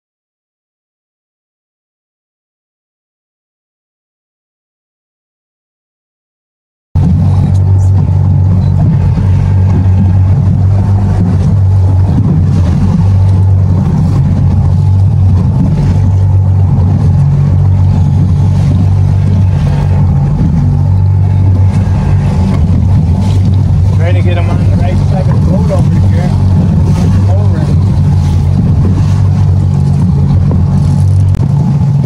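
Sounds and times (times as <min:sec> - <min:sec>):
boat motor droning: 0:07.0 - 0:32.0.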